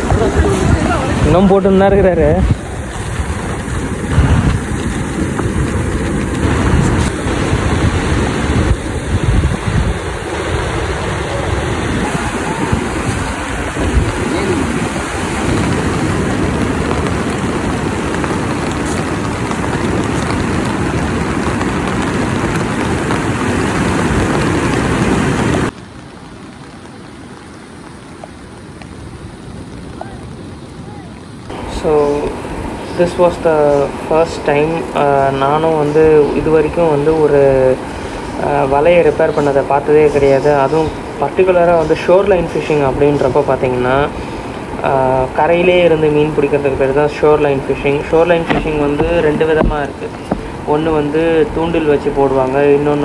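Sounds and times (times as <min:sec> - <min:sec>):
rain: 0:00.0 - 0:53.0
surf breaking on beach: 0:00.0 - 0:53.0
wind rumbling on microphone: 0:00.0 - 0:53.0.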